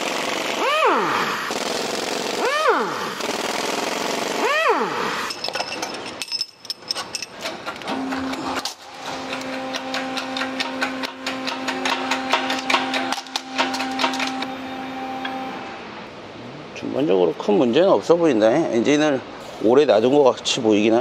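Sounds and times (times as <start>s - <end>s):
air impact wrench bursts: 0.0s - 5.4s
metallic clicks and clinks: 5.2s - 7.9s.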